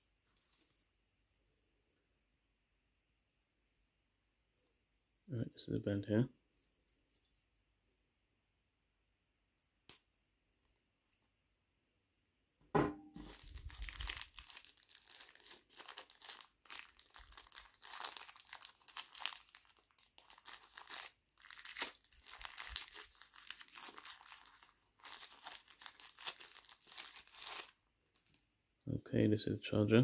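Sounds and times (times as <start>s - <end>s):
sharp knock: 12.7s - 13.1s
packaging crinkling and rustling: 13.2s - 28.4s.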